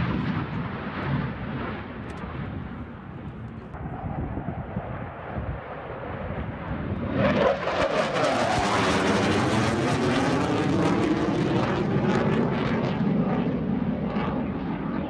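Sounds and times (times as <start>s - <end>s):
fighter jet flying past: 0.0s - 15.0s.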